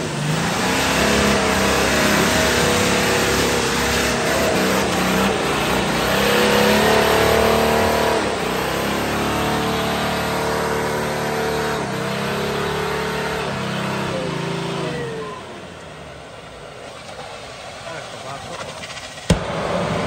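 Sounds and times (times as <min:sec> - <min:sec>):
engine revving hard: 0:00.0 - 0:15.6.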